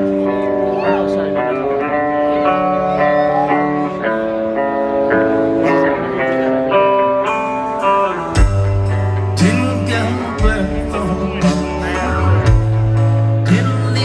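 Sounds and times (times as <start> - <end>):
electric guitar notes: 0.0 - 14.0
rock band playing live: 0.0 - 14.0
bass and drum kit: 8.2 - 14.0.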